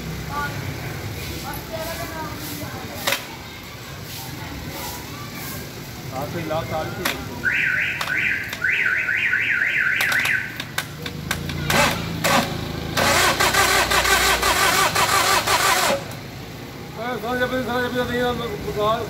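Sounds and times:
starter motor cranking engine: 11.3 - 16.3.

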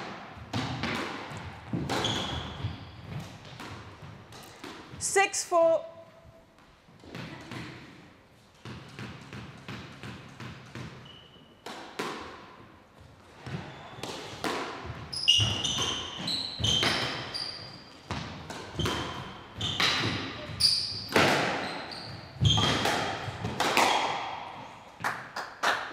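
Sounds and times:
squash ball and racket strikes: 0.0 - 5.0, 6.5 - 25.8
sneakers squeaking on court: 0.4 - 5.1, 8.6 - 11.7, 13.4 - 24.0.

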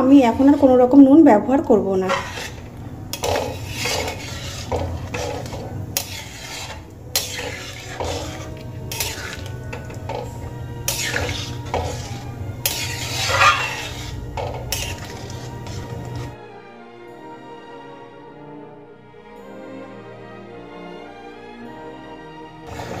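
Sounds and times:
metal spatula scraping pan: 2.0 - 16.4, 22.7 - 23.0
liquid sloshing: 2.1 - 16.4.

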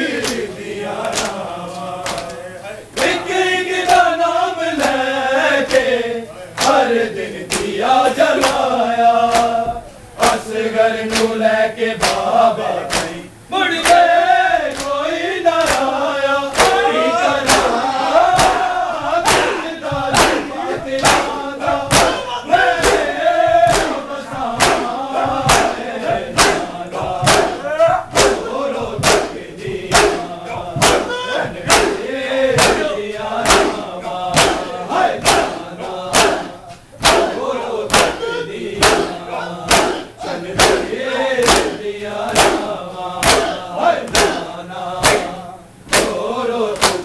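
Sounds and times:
men chanting in unison: 0.0 - 47.0
hands slapping chests: 12.0 - 12.2, 15.6 - 15.9, 16.5 - 17.7, 19.2 - 22.2, 22.8 - 25.8, 26.4 - 28.4, 29.0 - 30.2, 30.8 - 32.0, 32.6 - 33.8, 34.4 - 37.3, 37.9 - 38.2, 38.8 - 40.0, 40.6 - 44.4, 45.0 - 45.3, 45.9 - 46.2, 46.8 - 47.0.

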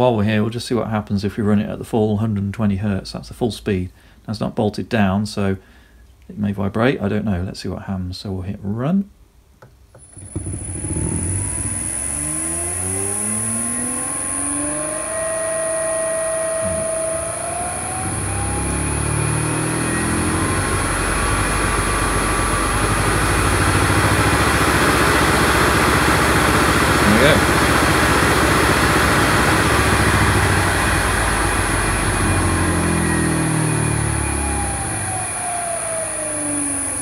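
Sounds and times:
electric motor whine rising in pitch: 10.0 - 37.0
steady high-pitched tone: 11.2 - 28.1.

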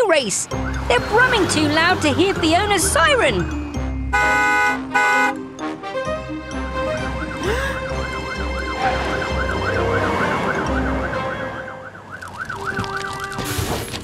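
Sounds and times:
engines rumbling: 0.0 - 14.0
light background music: 0.1 - 12.0
cartoon siren wailing: 8.6 - 13.3.

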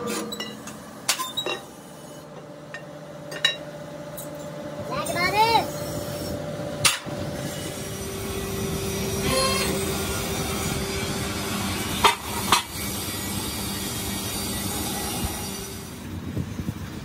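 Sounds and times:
workshop machinery hum: 0.0 - 17.0.

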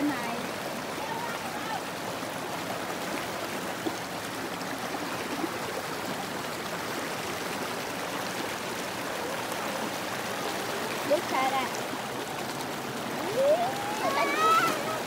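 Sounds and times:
stream rushing over rocks: 0.0 - 15.0.

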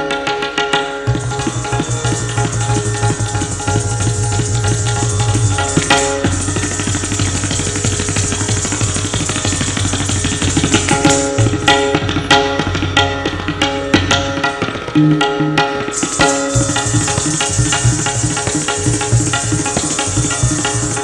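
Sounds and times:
tabla strokes: 0.0 - 21.0
high shimmer: 1.0 - 12.1, 15.9 - 21.0.

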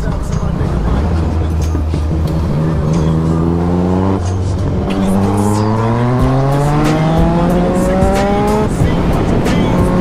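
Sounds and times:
motorcycle engine accelerating: 0.0 - 10.0
wind rush: 6.7 - 10.0.

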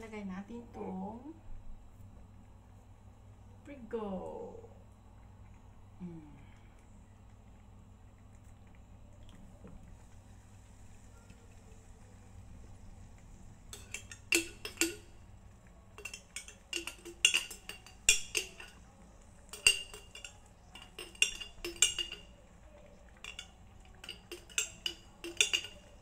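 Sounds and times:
metal spoon clinking on glass jar: 13.7 - 15.2, 16.0 - 18.8, 19.5 - 22.4, 23.2 - 26.0.

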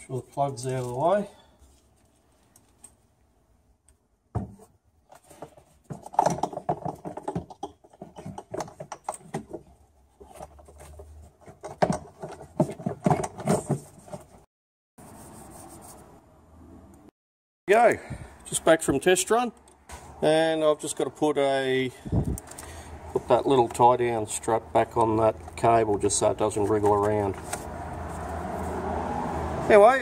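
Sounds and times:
plastic clicks knocks and scrapes: 5.4 - 14.3.

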